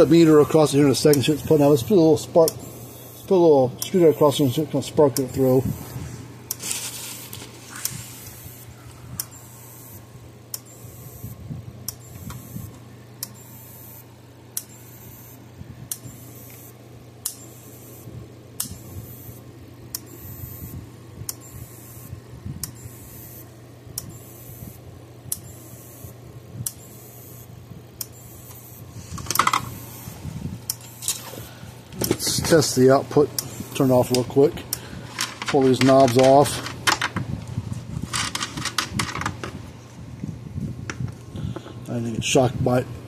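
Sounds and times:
electric fence charger snapping: 33.3 - 39.6.

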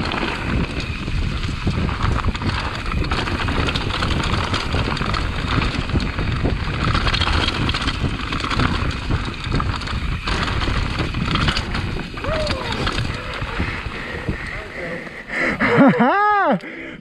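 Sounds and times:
bike clattering over rocks: 0.0 - 14.5
wind and tyres rumbling: 0.0 - 17.0.

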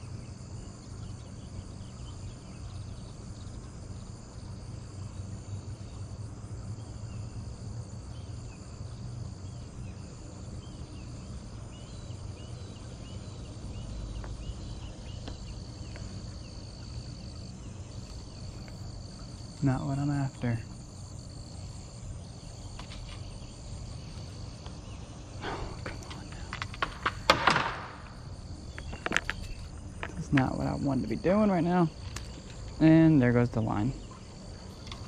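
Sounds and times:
low steady rumble: 0.0 - 27.2
insects droning: 0.0 - 35.0.

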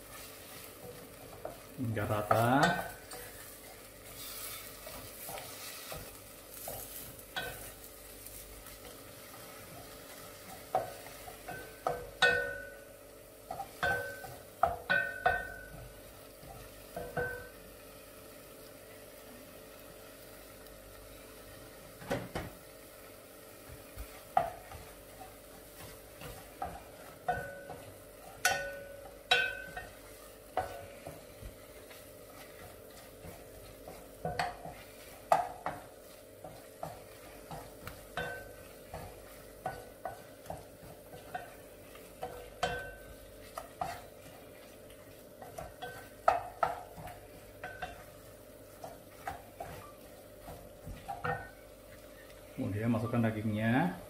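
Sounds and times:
wooden spoon scraping a metal pot: 0.0 - 12.5, 24.0 - 52.3
paste sizzling in oil: 0.0 - 53.9.

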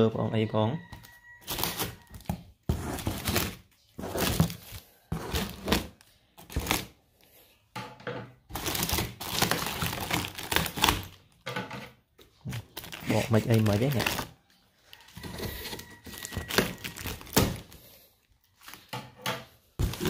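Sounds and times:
packaging crinkling and rustling: 1.4 - 7.0, 8.5 - 11.4, 12.4 - 19.0, 19.8 - 20.0.

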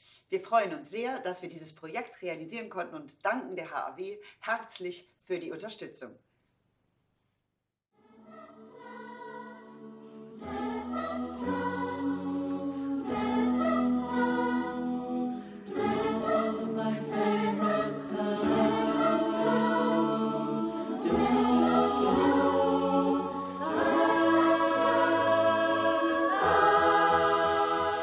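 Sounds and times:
choir singing sustained chords: 8.0 - 28.0.

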